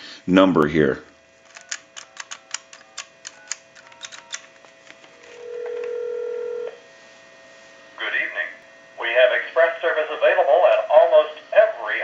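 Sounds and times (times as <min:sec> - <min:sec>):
keypad clicks with tone beeps: 0:01.5 - 0:04.5
telephone ringback tone: 0:05.2 - 0:06.8.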